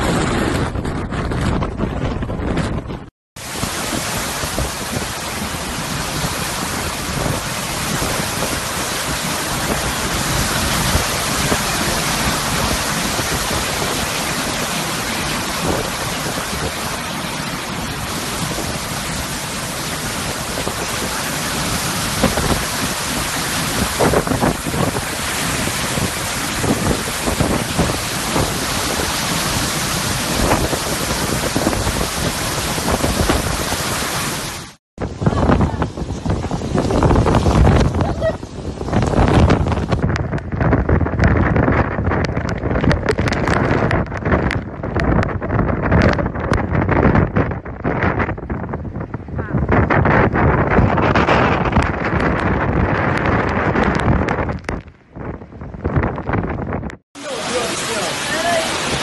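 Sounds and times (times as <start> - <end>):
storm wind and heavy rain: 0.0 - 59.0
wind buffeting microphone: 0.0 - 59.0.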